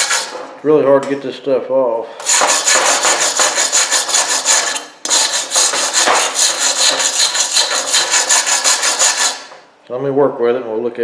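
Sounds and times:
wire brush scrubbing metal: 0:00.0 - 0:00.4, 0:02.2 - 0:09.5.

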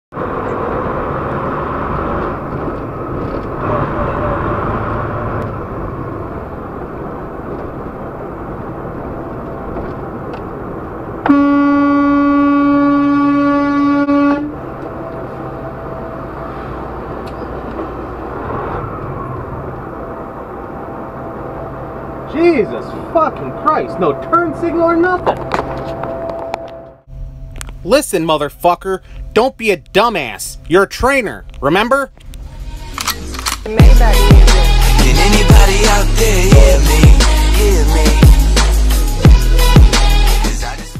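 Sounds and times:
diesel engine and road noise: 0:00.1 - 0:40.9
truck horn blast: 0:03.6 - 0:05.4, 0:11.2 - 0:14.8.

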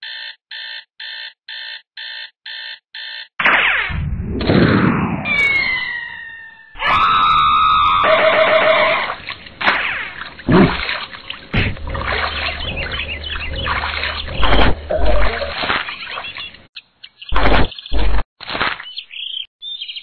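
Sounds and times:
cartoon falling whistle: 0:05.3 - 0:08.9
watery sloshing: 0:08.8 - 0:16.7
thumps: 0:11.5 - 0:15.8.

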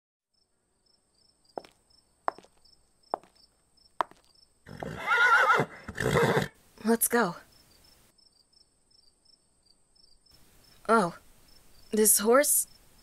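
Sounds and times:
crickets chirping: 0:00.3 - 0:13.0
slow footsteps: 0:01.6 - 0:04.9
horse whinnying: 0:04.7 - 0:06.6.

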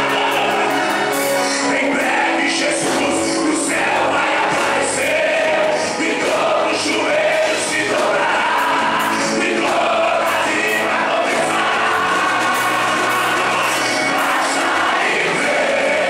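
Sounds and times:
man singing through a microphone: 0:00.0 - 0:04.6
congregation singing along: 0:00.0 - 0:16.0
instrumental backing with steady beat: 0:00.0 - 0:16.0.

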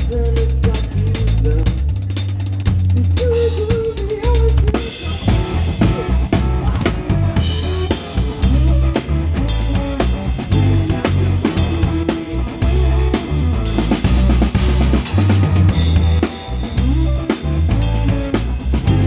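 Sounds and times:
deep sustained bass notes: 0:00.0 - 0:19.0
live band playing: 0:00.0 - 0:19.0.

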